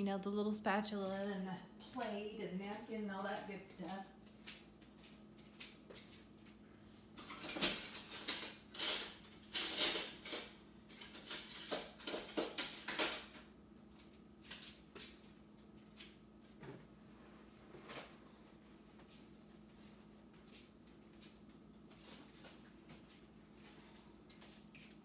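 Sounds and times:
faint steady hum: 0.0s - 25.0s
kitchen utensils and dishes clattering: 7.2s - 13.4s.

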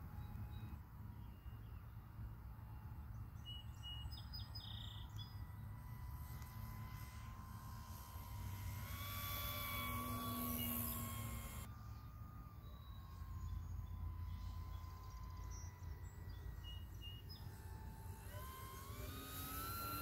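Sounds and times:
model plane motor whine: 0.0s - 20.0s
bird chirps: 3.1s - 5.4s, 10.5s - 17.7s.

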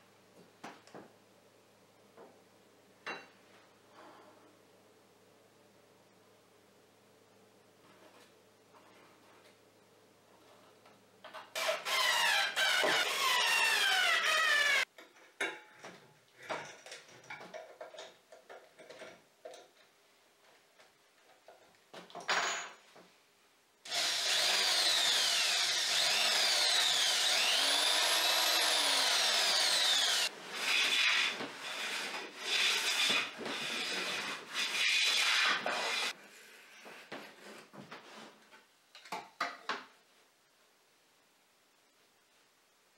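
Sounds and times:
cordless drill spinning shaft: 11.6s - 14.9s, 23.9s - 34.2s.

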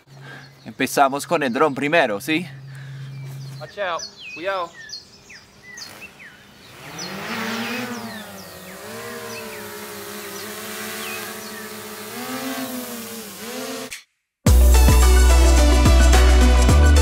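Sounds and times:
drone propellers buzzing: 6.6s - 14.0s.

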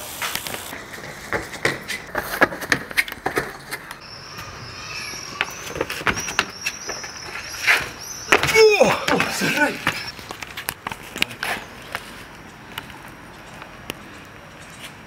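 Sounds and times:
running footsteps on concrete: 0.2s - 4.0s, 5.0s - 14.4s
faint high chirps: 4.0s - 10.2s.

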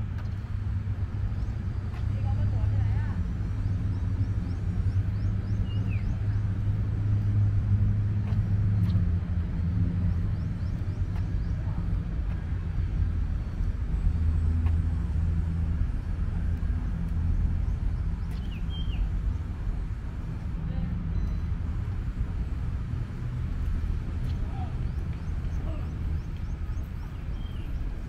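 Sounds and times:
distant road traffic rumble: 0.0s - 28.0s.

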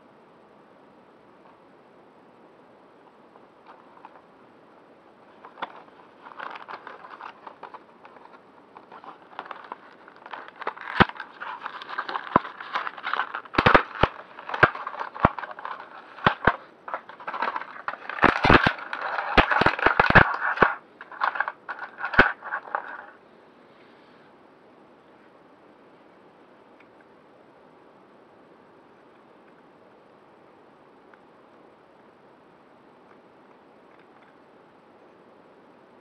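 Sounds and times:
plastic wrapping crinkling: 5.3s - 23.2s.

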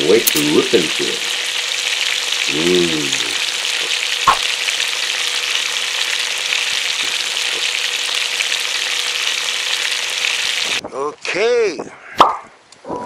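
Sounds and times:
fish sizzling in hot oil: 0.0s - 10.8s.

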